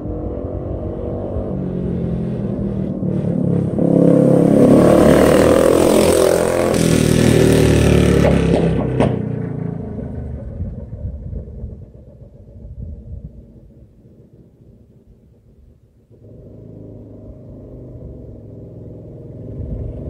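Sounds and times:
mini bike engine running hard: 0:05.4 - 0:08.9
engine backfire pops: 0:08.0 - 0:09.6.

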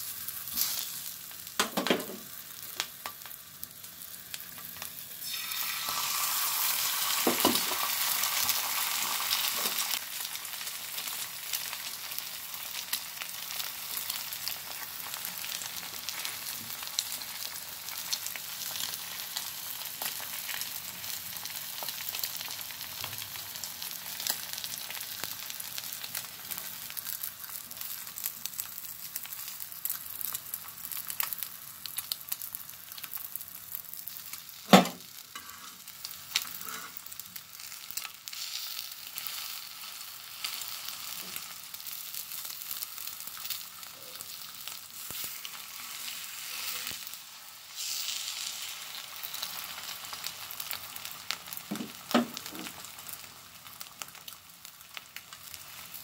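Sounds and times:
egg sizzling on a griddle: 0:00.0 - 0:56.0
sharp knock: 0:34.7 - 0:35.0.

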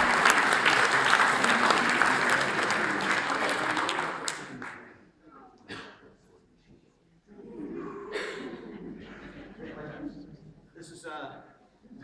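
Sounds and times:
group applause: 0:00.0 - 0:05.0.

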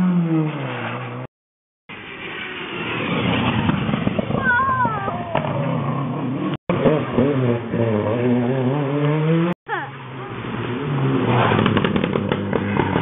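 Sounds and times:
rally car engine passing: 0:01.9 - 0:13.0
rally car engine revving: 0:05.2 - 0:13.0.

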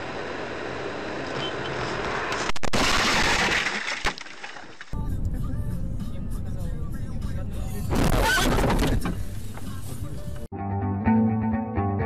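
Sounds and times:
car road and engine noise: 0:00.0 - 0:02.6, 0:04.9 - 0:10.5
car crash rushing and scraping: 0:01.2 - 0:04.8, 0:07.9 - 0:09.6.

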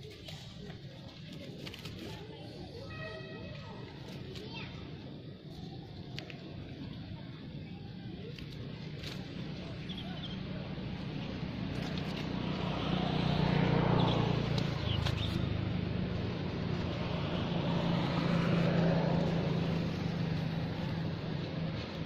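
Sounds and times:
vehicle engine running: 0:06.3 - 0:22.0.

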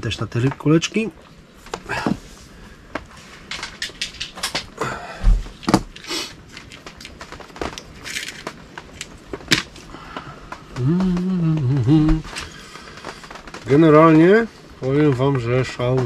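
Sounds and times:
fishing tackle clicks and rustles: 0:03.0 - 0:04.8, 0:05.4 - 0:09.9.

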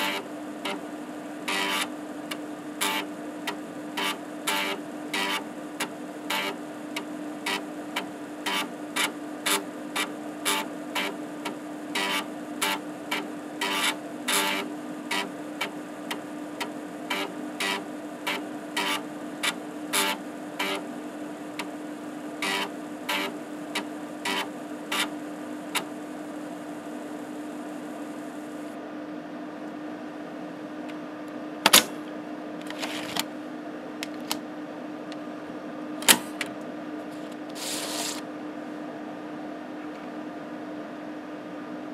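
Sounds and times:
steady hum: 0:00.0 - 0:41.9
diskette rasping out of slot: 0:32.6 - 0:33.3, 0:37.3 - 0:38.2.

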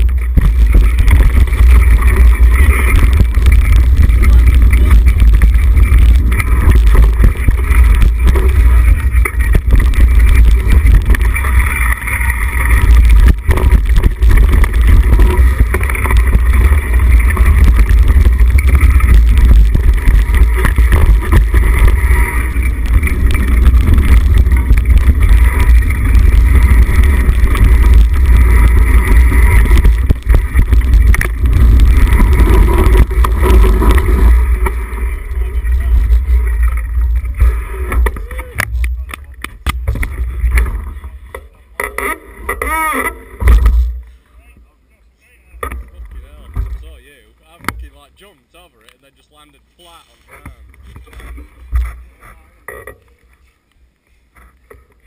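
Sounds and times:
wind rushing over microphone: 0:00.0 - 0:41.2
bike knocks and rattles: 0:00.0 - 0:44.0, 0:45.6 - 0:48.0
tyres rolling on dirt trail: 0:00.0 - 0:55.0.

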